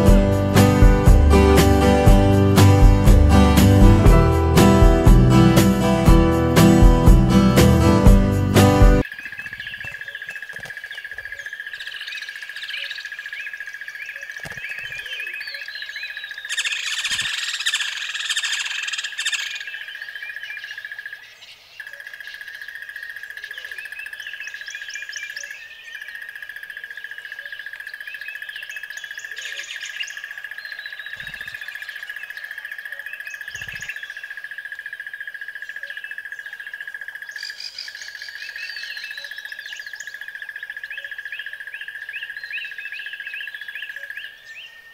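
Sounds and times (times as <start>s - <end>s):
birds chirping and calling: 9.0s - 44.9s.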